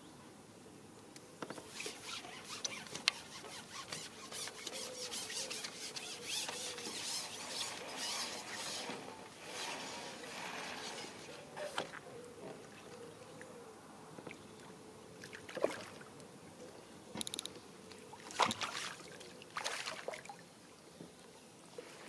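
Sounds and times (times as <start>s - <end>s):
fishing pole rasping squeaks: 1.6s - 11.9s.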